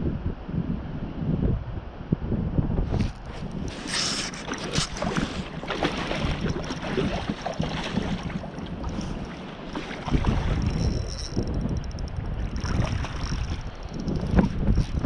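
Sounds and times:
wind buffeting microphone: 0:00.0 - 0:15.0
fishing reel clicks and rattles: 0:10.5 - 0:15.0.

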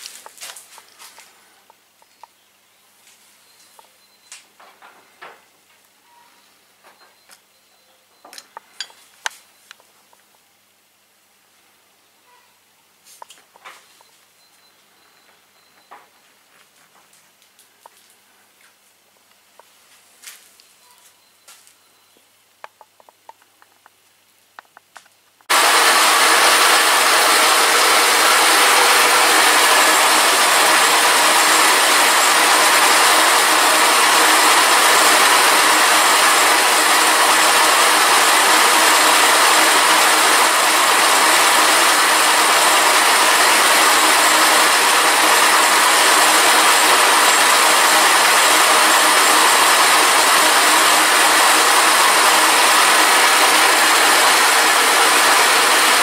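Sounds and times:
milling machine cutting metal: 0:25.5 - 0:56.0.

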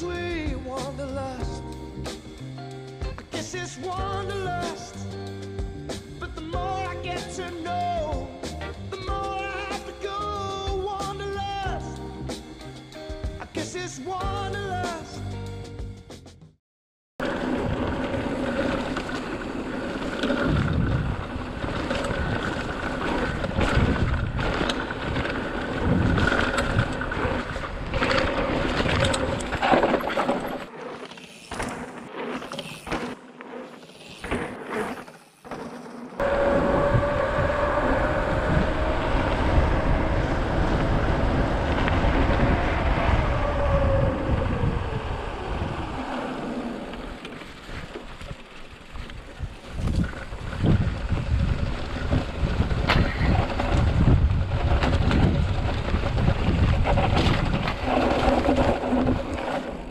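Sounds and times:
bike rattling on bumpy ground: 0:00.0 - 0:01.6, 0:02.2 - 0:11.9, 0:17.2 - 0:59.9
wind on microphone: 0:20.1 - 0:30.0, 0:36.2 - 0:47.2, 0:49.0 - 0:59.9
electric motor whine: 0:36.2 - 0:47.3.

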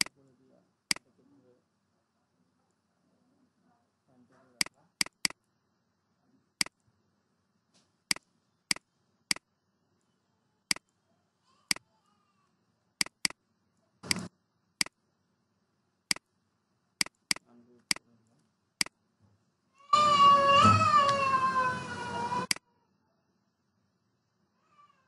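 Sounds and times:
computer mouse clicking: 0:04.6 - 0:05.4, 0:10.7 - 0:10.9, 0:13.0 - 0:13.4, 0:17.0 - 0:18.1.

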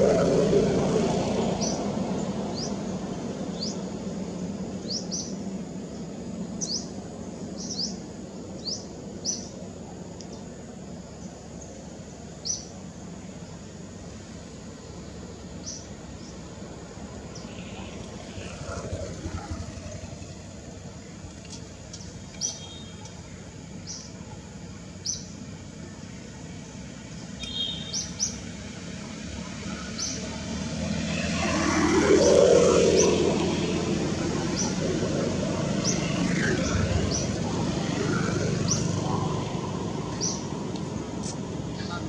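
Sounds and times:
vehicle passing: 0:00.0 - 0:03.8, 0:17.0 - 0:21.1, 0:28.4 - 0:42.0
bird chirping: 0:21.9 - 0:23.1, 0:27.4 - 0:28.5, 0:29.8 - 0:30.3.

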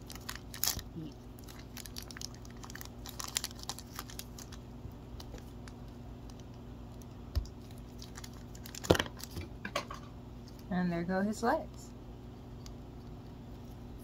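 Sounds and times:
plastic packaging crinkling: 0:00.0 - 0:09.5.

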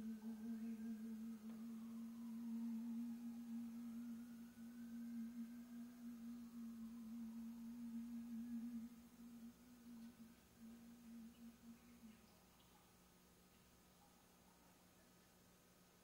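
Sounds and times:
sustained musical tone: 0:00.0 - 0:12.5.

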